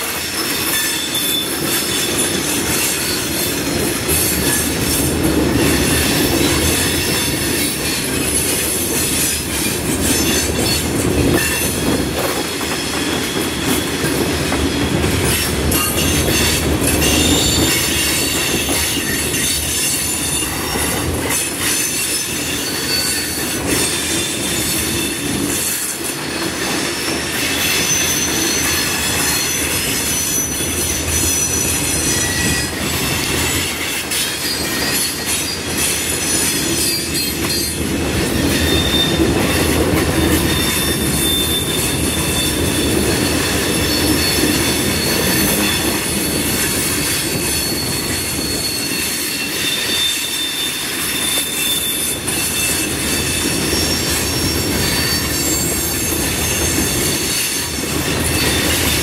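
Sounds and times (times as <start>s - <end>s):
train cars rolling on rails: 0.0s - 59.0s
wheels squealing: 27.0s - 59.0s.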